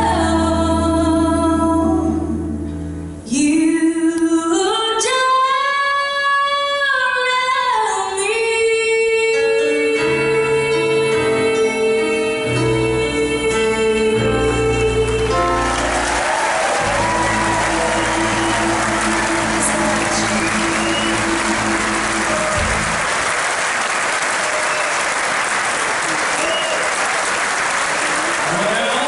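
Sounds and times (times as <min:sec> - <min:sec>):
woman singing: 0:00.0 - 0:02.6, 0:03.3 - 0:15.8, 0:17.0 - 0:22.3
country band playing: 0:14.4 - 0:23.3
audience applause: 0:15.1 - 0:29.0.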